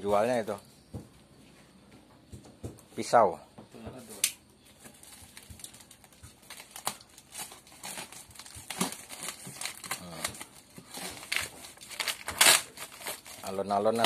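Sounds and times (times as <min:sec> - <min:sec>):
tape and paper crinkling and tearing: 0:04.1 - 0:14.0
knife slitting packing tape: 0:06.5 - 0:14.0.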